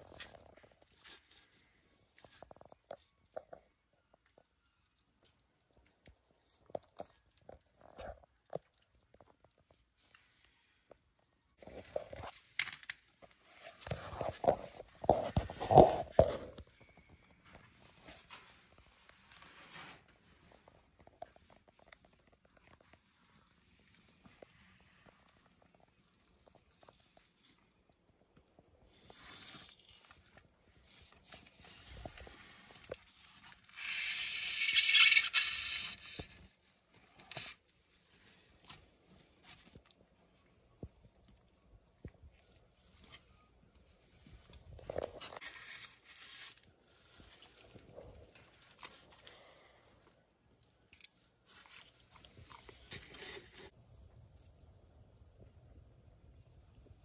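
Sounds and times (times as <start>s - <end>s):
claws scraping on wood: 31.2s - 36.5s.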